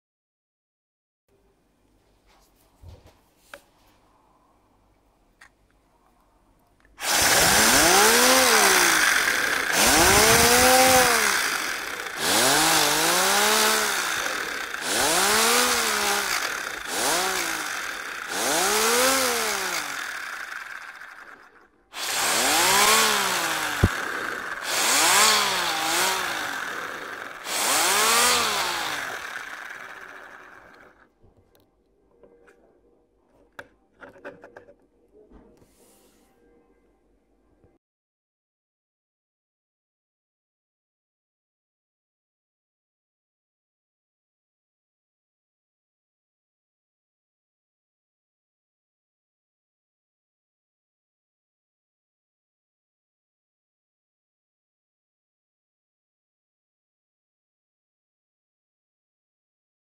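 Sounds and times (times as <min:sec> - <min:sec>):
air motor whirring: 0:07.0 - 0:31.0.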